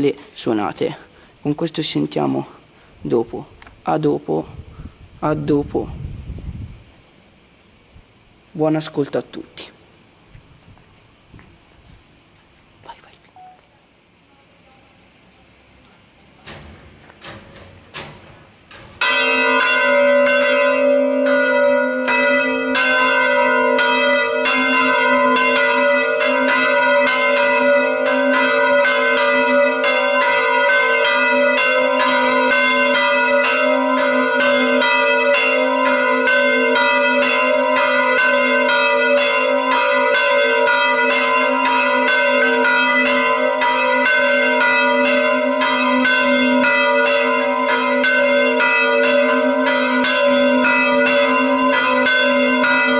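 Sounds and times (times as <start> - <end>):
church bells ringing: 18.0 - 52.9.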